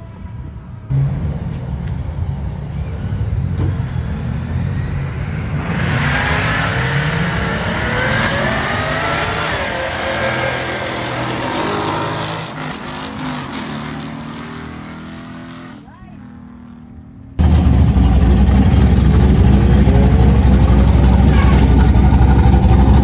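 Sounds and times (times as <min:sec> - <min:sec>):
drag cars accelerating: 0:00.2 - 0:23.0
low engine rumble: 0:16.3 - 0:23.0.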